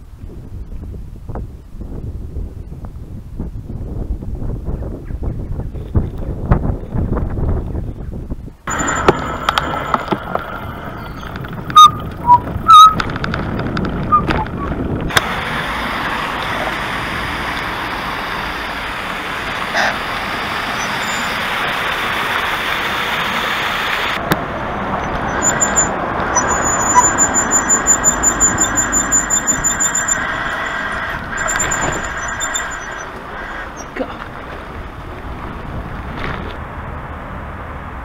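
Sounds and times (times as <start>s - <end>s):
wind and road noise: 0.0s - 38.0s
high-pitched squeak: 8.7s - 13.1s, 25.0s - 34.0s.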